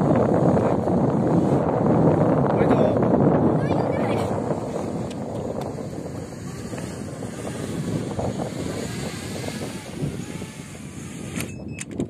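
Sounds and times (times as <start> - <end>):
wind buffeting microphone: 0.0 - 12.0
sharp click: 11.3 - 12.0.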